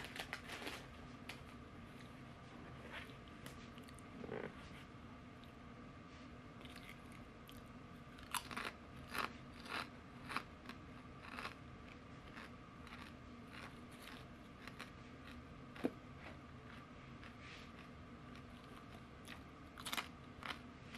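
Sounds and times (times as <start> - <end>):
potato chips crunching: 8.2 - 15.9, 17.8 - 20.7.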